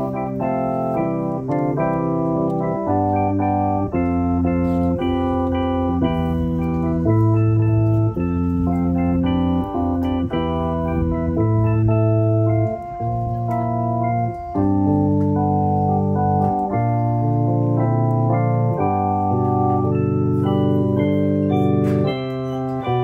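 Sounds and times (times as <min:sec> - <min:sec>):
organ chords: 0:00.0 - 0:23.0.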